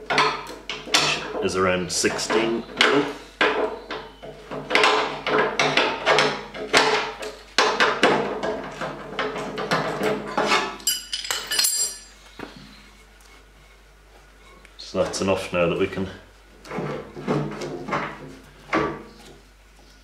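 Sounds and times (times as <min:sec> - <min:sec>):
high metallic ringing: 0:10.8 - 0:12.2.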